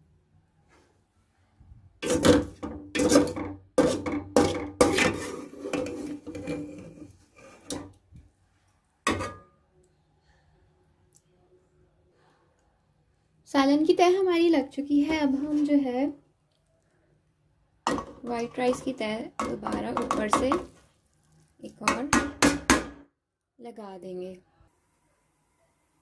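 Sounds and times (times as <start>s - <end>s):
spoon scraping metal pot: 2.0s - 8.0s.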